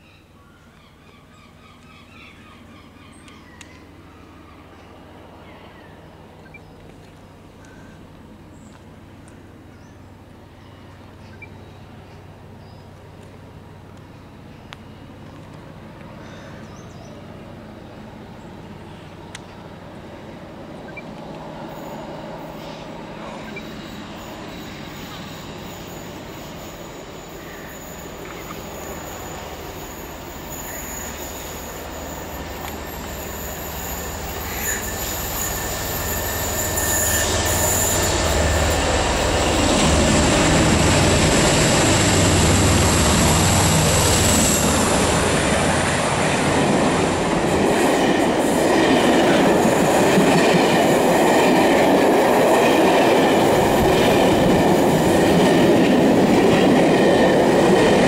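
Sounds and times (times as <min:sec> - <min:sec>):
diesel locomotive engines passing: 0:00.0 - 0:58.0
thin high whine: 0:21.6 - 0:48.6.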